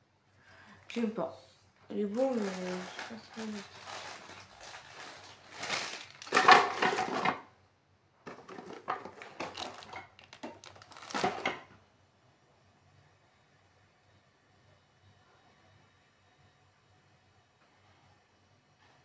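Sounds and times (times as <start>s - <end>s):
cardboard box rustling: 8.3s - 11.4s.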